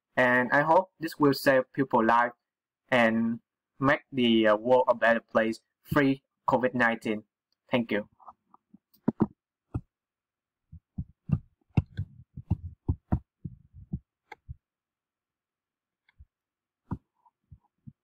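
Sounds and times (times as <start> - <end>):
desk and mouse handling thumps: 9.0 - 9.9, 10.8 - 14.6.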